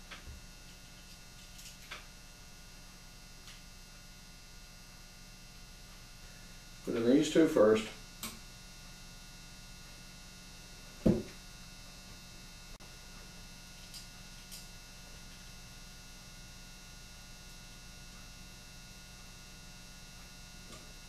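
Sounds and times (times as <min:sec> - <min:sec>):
electrical mains hum: 0:00.0 - 0:21.0
dull thump: 0:11.0 - 0:11.4.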